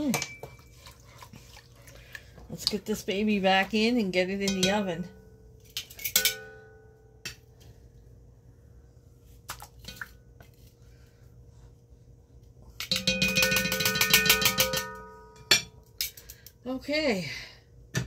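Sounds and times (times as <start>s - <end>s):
metal tongs clinking on a pot: 4.4s - 5.0s, 5.6s - 6.6s
pot ringing: 6.0s - 7.4s, 12.8s - 15.9s.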